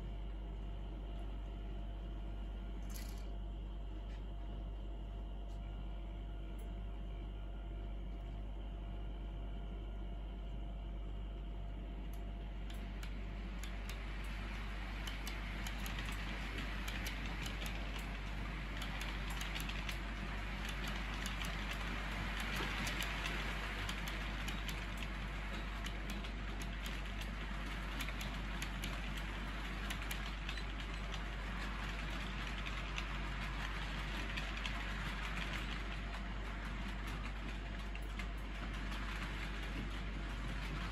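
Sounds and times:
model train wheels clicking: 12.1s - 40.9s.

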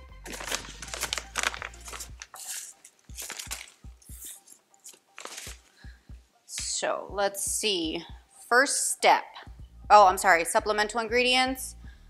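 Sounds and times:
faint background music: 0.0s - 12.0s
paper bag rustling: 0.2s - 5.8s.

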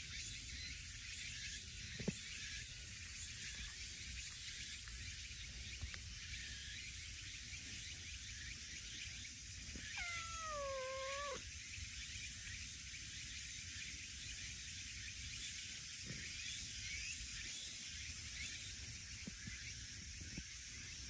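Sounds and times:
cat meowing: 9.9s - 11.4s.

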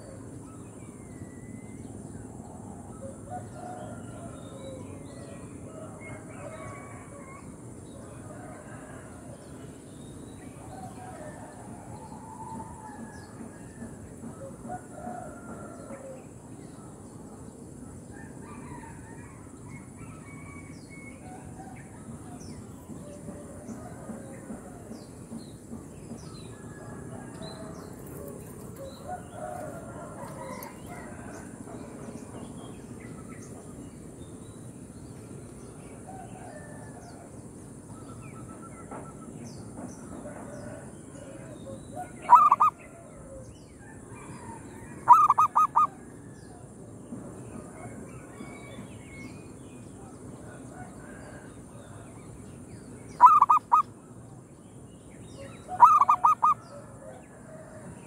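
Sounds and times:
dove cooing: 40.6s - 43.4s, 45.0s - 46.0s, 53.2s - 53.8s, 55.7s - 57.7s.

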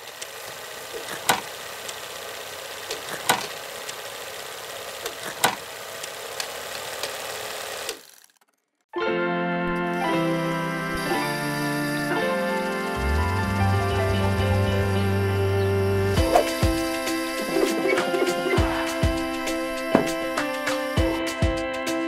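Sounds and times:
film projector clattering: 0.0s - 8.7s
music: 9.0s - 22.0s.

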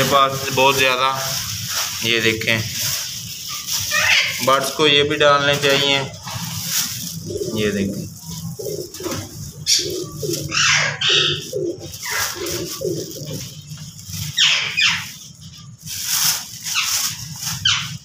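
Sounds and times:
pigeons cooing: 2.8s - 18.0s.

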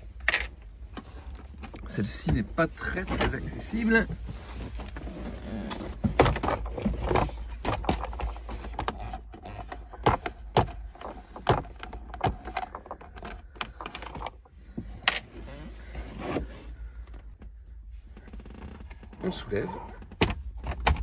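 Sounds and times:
plastic parts rattling: 5.8s - 15.2s.

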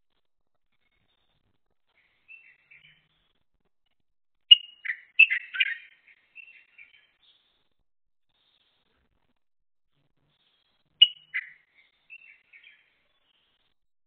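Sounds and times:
bulbul chirping and warbling: 4.5s - 5.8s, 11.0s - 11.5s.

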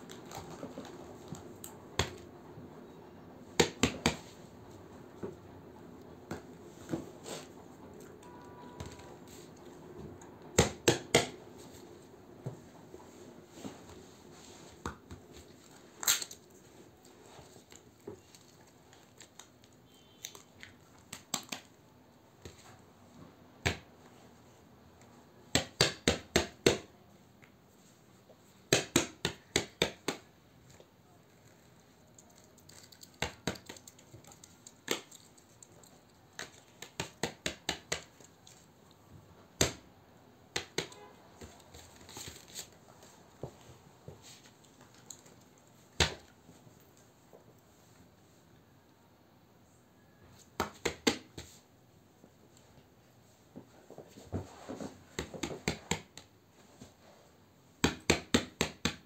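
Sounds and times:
hand tapping on paper and plastic: 3.6s - 4.3s, 32.3s - 38.7s, 40.5s - 42.7s.

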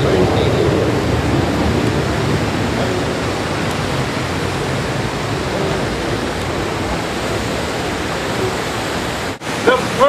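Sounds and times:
fountain water splashing: 0.0s - 10.0s.

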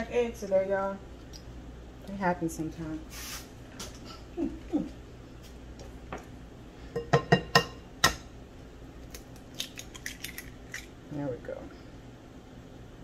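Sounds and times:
eggshell cracking clicks: 9.0s - 10.9s.

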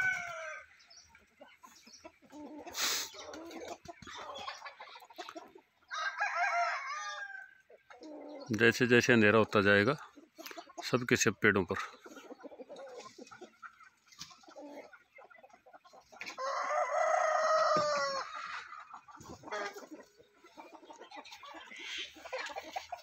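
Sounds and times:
rooster crowing: 0.0s - 0.7s, 5.9s - 7.5s, 16.4s - 18.3s
hens clucking: 0.0s - 23.0s.

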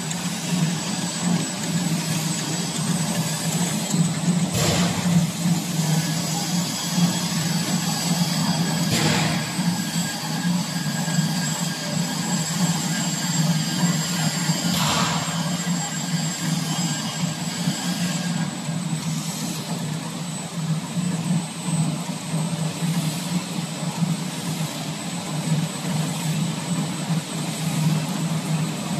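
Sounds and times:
conveyor mechanical hum: 0.0s - 28.9s.

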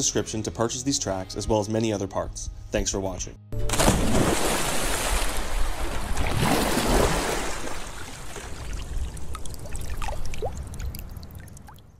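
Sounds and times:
water trickling and splashing: 3.8s - 11.9s.

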